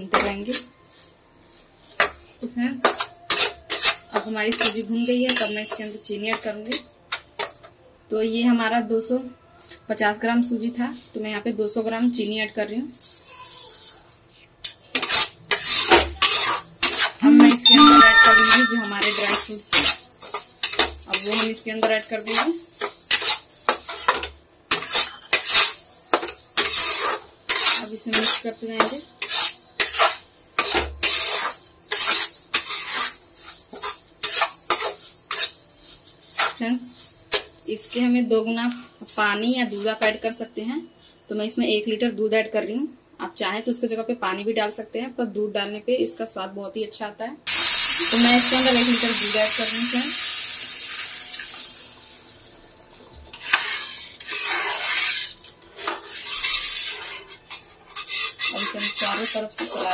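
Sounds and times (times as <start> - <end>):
metal spatula scraping a pan: 2.8 - 7.7, 13.0 - 14.0, 14.6 - 40.2, 53.2 - 59.9.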